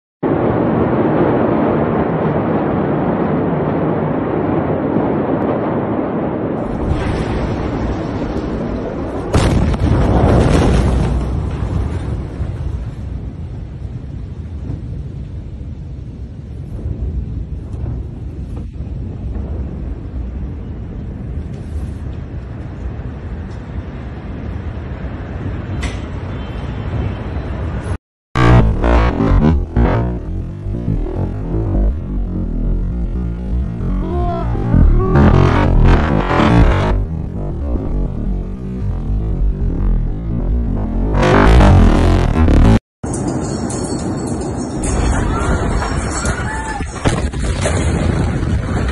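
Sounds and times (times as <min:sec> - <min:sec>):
steady low rumbling: 0:00.2 - 0:10.6, 0:11.3 - 0:25.1, 0:28.4 - 0:42.8.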